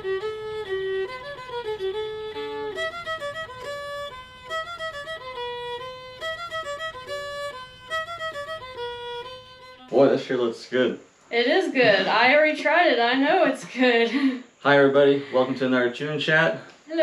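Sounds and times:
fiddle tune: 0.0s - 10.6s.

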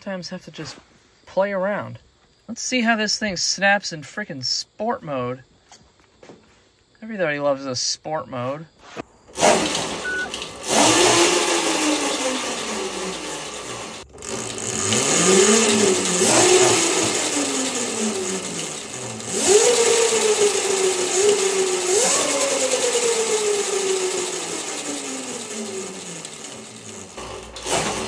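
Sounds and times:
electric motor whining: 9.3s - 28.0s.

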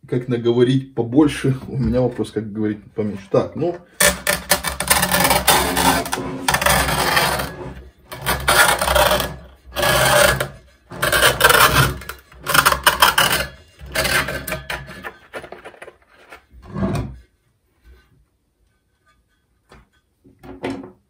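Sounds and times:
knife scraping and cutting: 4.0s - 17.3s.

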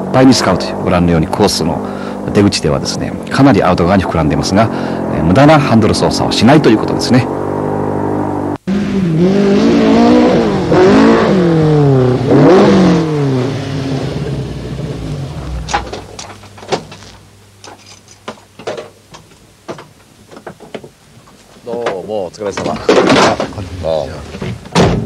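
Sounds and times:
car engine revving hard: 6.2s - 16.0s
light clicks and knocks: 15.7s - 23.6s.

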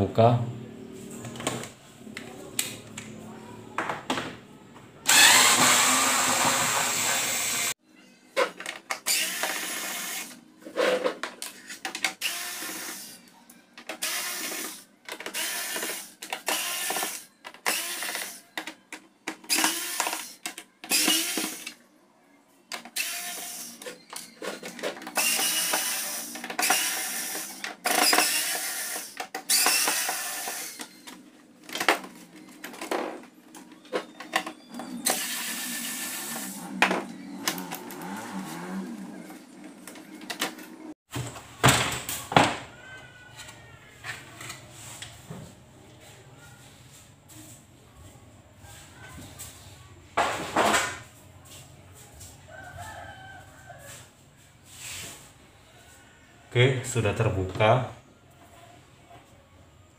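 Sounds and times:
electric screwdriver whirring: 5.1s - 7.7s, 9.0s - 10.4s, 12.2s - 13.2s, 14.0s - 18.4s, 19.5s - 21.7s, 22.9s - 23.8s, 25.2s - 31.0s, 35.0s - 36.7s.

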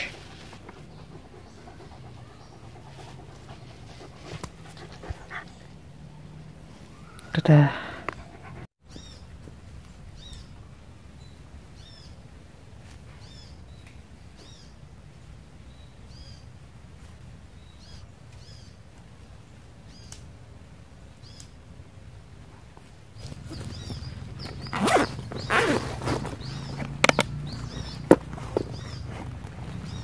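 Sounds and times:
bird chirping: 0.0s - 9.3s, 23.2s - 30.0s
low outdoor background: 0.0s - 30.0s
backpack rustling: 23.2s - 30.0s.

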